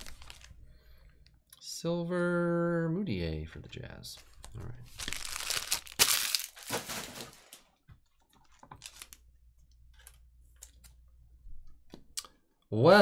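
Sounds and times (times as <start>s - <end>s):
trading cards rustling and crinkling: 0.0s - 0.6s, 4.2s - 9.3s.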